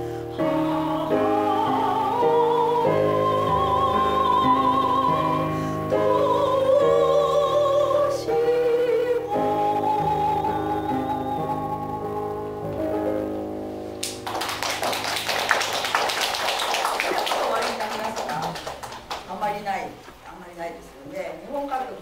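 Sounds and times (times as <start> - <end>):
woman singing classical style: 0.0 - 12.5.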